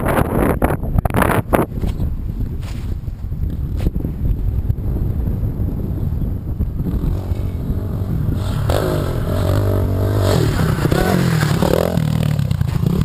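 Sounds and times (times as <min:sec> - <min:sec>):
wind rumble on microphone: 0:00.0 - 0:13.0
dirt bike engine revving: 0:06.7 - 0:13.0.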